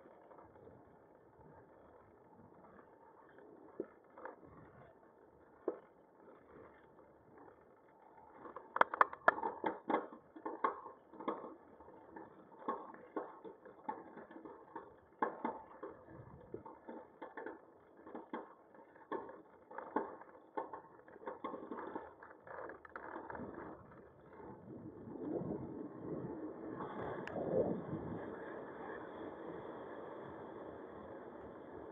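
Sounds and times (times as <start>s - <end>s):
bicycle clicks and rattles: 0.0s - 24.7s.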